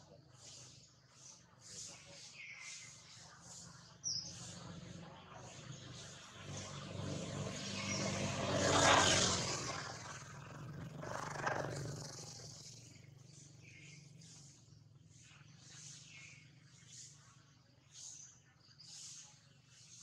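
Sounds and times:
motor vehicle passing: 4.1s - 17.1s.

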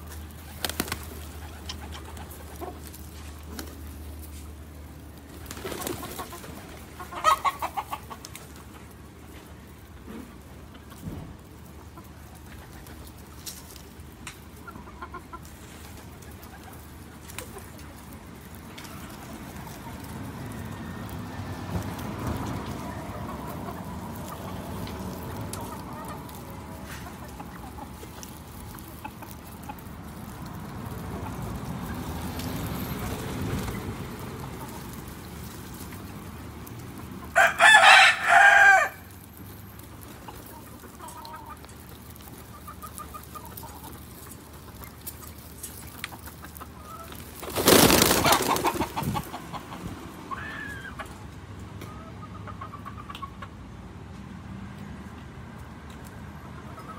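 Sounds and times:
pigeons wing flapping: 0.3s - 3.8s, 5.2s - 6.8s, 47.2s - 49.3s
rooster crowing: 37.4s - 39.1s.

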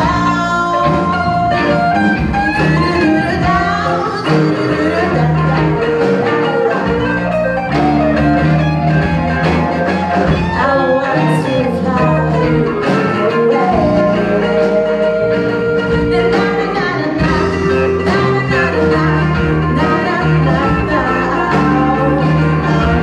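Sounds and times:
woman singing: 0.0s - 1.9s, 2.6s - 7.4s, 10.3s - 23.0s
bass guitar: 0.0s - 23.0s
drum kit: 0.0s - 23.0s
electric guitars: 0.0s - 23.0s.

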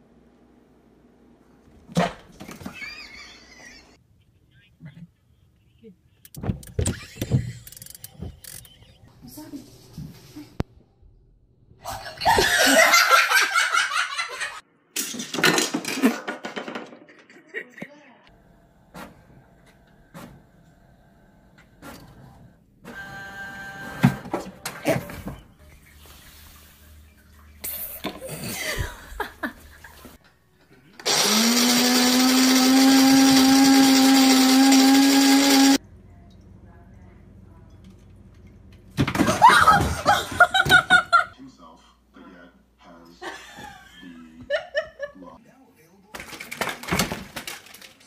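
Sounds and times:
people laughing: 2.6s - 5.2s, 11.8s - 14.6s, 28.2s - 30.2s, 39.2s - 41.4s, 43.2s - 45.4s
electric motor humming: 31.0s - 35.8s.

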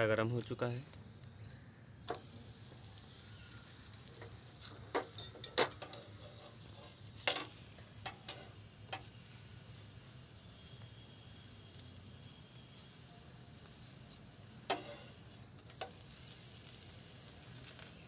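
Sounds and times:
dough sizzling on a hot pan: 2.0s - 18.0s
metal spatula scraping a pan: 4.6s - 9.1s, 14.6s - 16.0s.

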